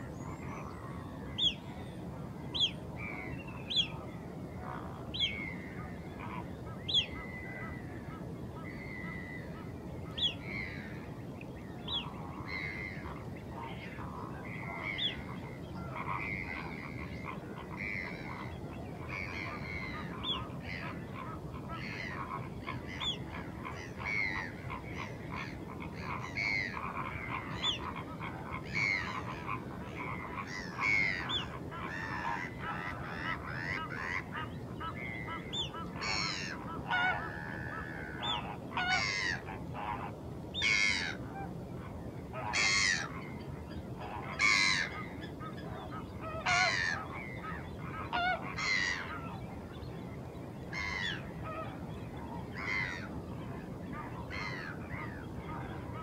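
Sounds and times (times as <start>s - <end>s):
wild birds calling: 0.0s - 56.0s.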